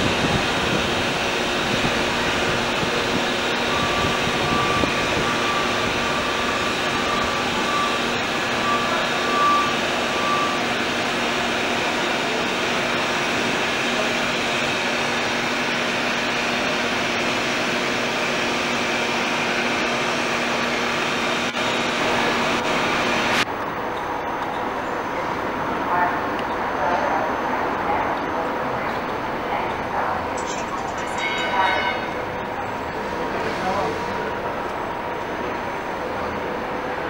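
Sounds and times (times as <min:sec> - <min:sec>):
subway train rumble and hiss: 0:00.0 - 0:37.0
thin high tone: 0:30.3 - 0:33.0.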